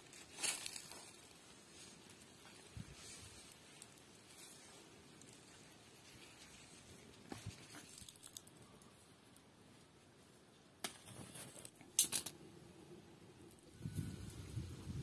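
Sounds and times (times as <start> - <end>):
leaves rustling: 0.0 - 9.1
stems snapping: 7.6 - 8.6.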